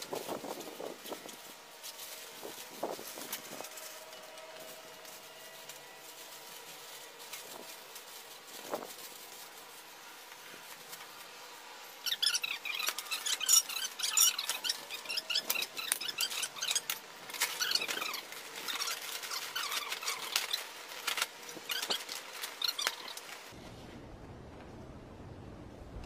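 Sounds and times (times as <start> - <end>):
metal frame squeaks and clicks: 12.0 - 23.3.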